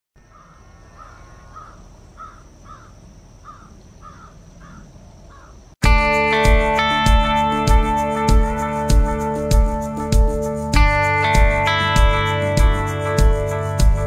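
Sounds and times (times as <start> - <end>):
crow cawing: 0.3 - 5.6
loud guitar music: 5.8 - 14.0.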